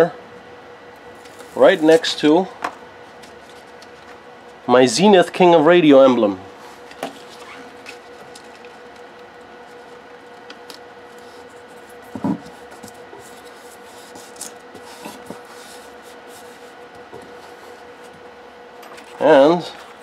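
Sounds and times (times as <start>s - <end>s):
faint steady hum: 0.0s - 20.0s
hands rubbing sticker on board: 12.7s - 17.8s.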